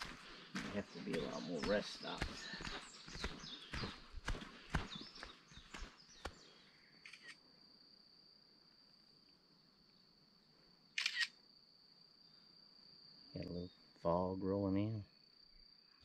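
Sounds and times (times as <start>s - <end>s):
insect trill: 0.0s - 16.0s
camera shutter clicks: 7.0s - 7.4s, 11.0s - 11.4s.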